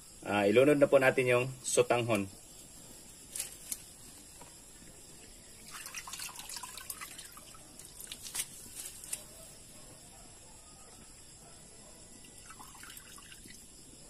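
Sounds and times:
small pops and splashes: 5.6 - 9.2.

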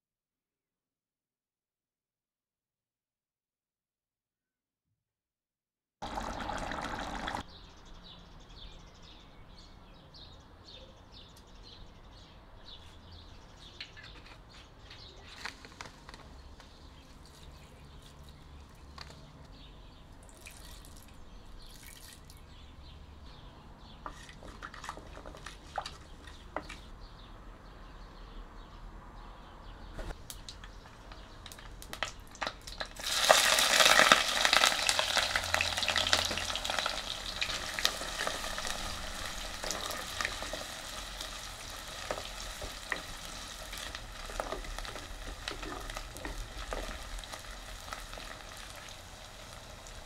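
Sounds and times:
oil crackling and popping: 6.0 - 7.4, 24.3 - 26.9, 30.2 - 50.0
oil sizzling in pot: 6.0 - 7.4, 32.0 - 50.0.

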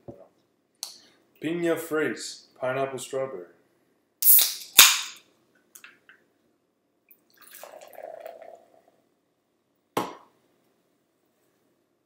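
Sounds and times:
can cracking open with fizz: 4.2 - 5.2
sparkling water pouring into cup: 7.3 - 8.9.

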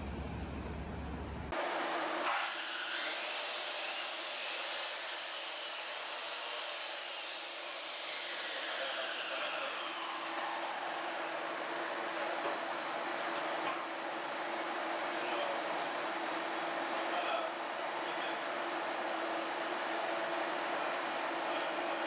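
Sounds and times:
circular saw cutting board: 1.6 - 11.9.

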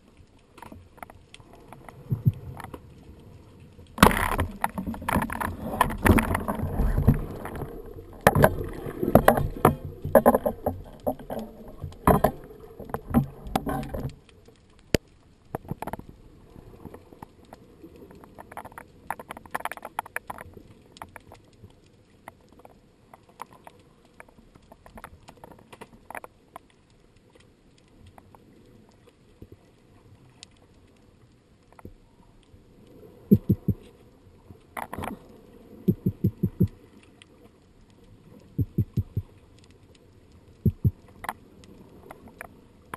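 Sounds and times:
underwater rushing: 0.0 - 42.9
knocks and clicks: 33.3 - 33.8, 35.9 - 36.7, 38.6 - 39.3, 40.6 - 41.0.

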